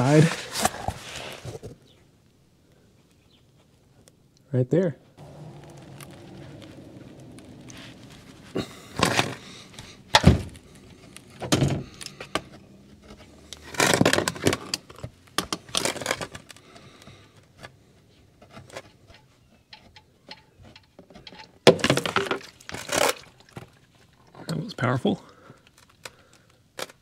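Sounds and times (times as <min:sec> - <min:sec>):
scraping and rustling: 0:00.0 - 0:02.0, 0:05.2 - 0:24.1.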